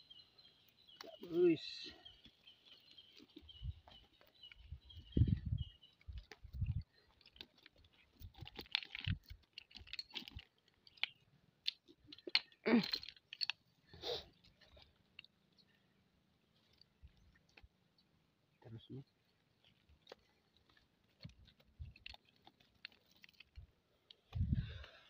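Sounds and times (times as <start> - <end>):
clicks and squelches of net and mud: 5.7 - 15.4, 19.4 - 25.0.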